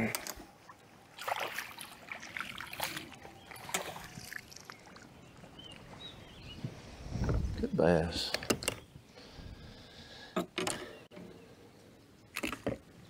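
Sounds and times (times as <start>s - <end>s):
water splashing and dripping: 1.1s - 5.8s.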